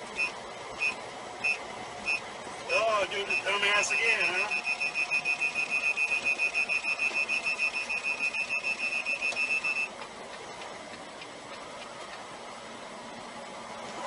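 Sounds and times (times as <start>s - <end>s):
truck road and engine noise: 0.0s - 14.0s
rapid electronic warning beeps: 0.2s - 9.9s.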